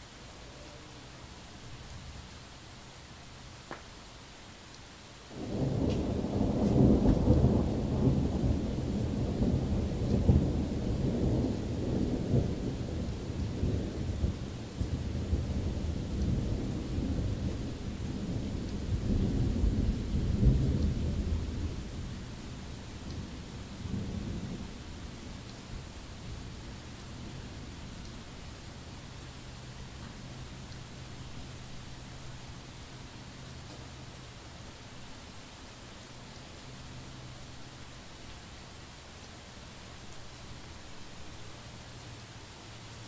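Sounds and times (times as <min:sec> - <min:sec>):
thunder rolling rumble: 0:05.4 - 0:24.8.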